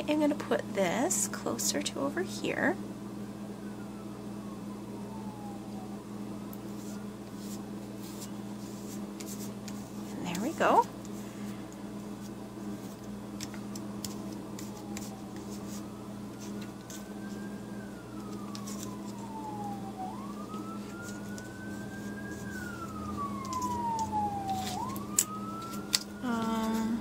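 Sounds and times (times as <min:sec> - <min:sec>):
siren wailing: 0:03.2 - 0:07.6, 0:13.4 - 0:27.0.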